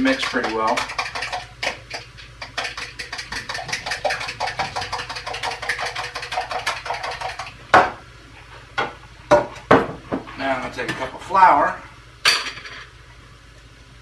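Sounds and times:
whisk clicking against bowl: 0.0s - 7.6s.

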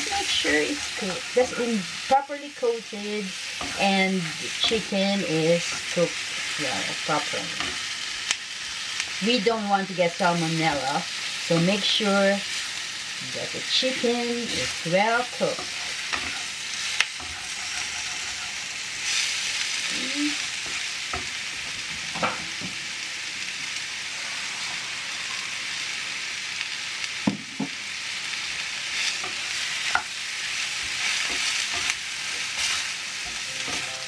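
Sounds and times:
chicken sizzling in frying pan: 0.0s - 34.0s
wooden spatula scraping pan: 17.2s - 18.8s.

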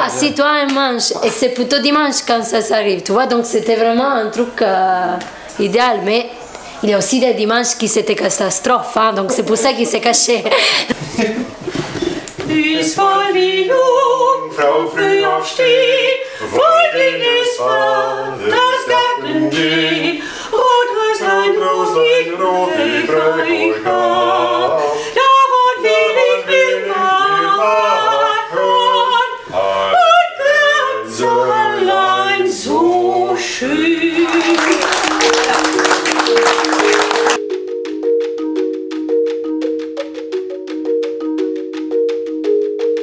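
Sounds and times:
person singing unaccompanied: 11.0s - 37.4s
audience applauding: 34.2s - 37.4s
music with mallet-like notes: 34.8s - 43.0s.

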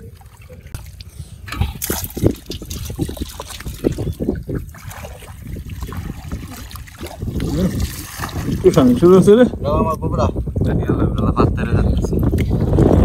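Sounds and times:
muddy water splashing and sloshing: 0.0s - 9.5s.

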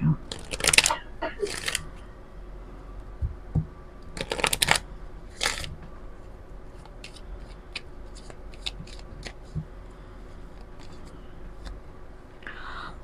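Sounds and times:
cards shuffling: 0.3s - 1.9s, 4.2s - 5.7s, 6.8s - 9.6s, 10.5s - 11.8s.

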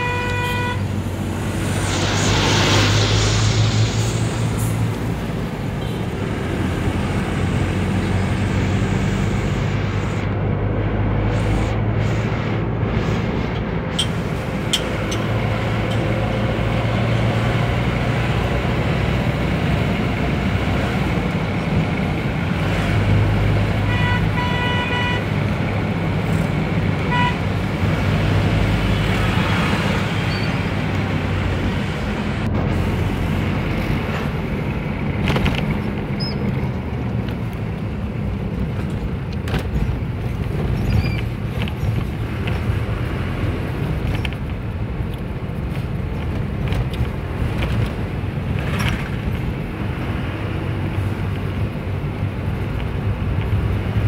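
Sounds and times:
vehicle horn toots: 0.0s - 0.9s, 23.8s - 25.3s, 27.1s - 27.5s
road noise: 0.0s - 54.0s.

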